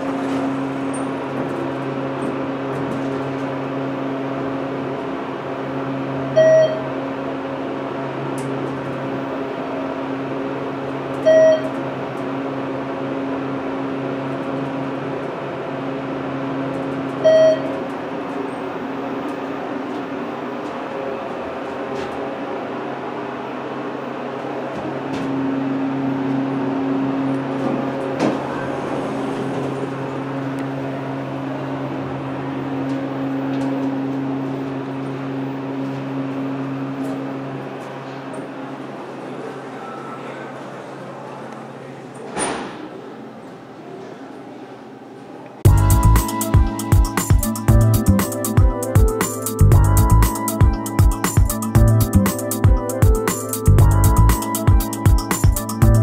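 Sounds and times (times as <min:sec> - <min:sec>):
elevator hum: 0:00.0 - 0:56.0
short electronic beeps: 0:06.4 - 0:06.9, 0:11.2 - 0:11.8, 0:17.2 - 0:17.8.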